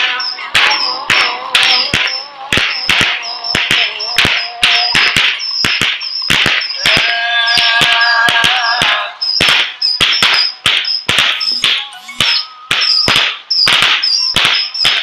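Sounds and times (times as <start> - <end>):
fireworks bangs: 0.0 - 15.0
wavering tone: 11.4 - 14.8.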